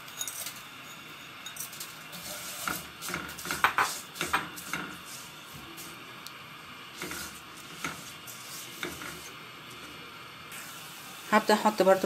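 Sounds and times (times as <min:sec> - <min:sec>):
spatula scraping metal pot: 0:02.1 - 0:05.3, 0:07.0 - 0:09.4.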